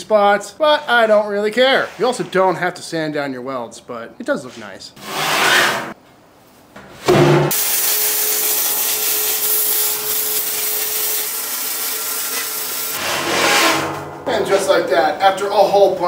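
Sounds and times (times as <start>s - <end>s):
welding arc crackling hiss: 7.5s - 13.0s
short scraping rush: 12.9s - 14.8s.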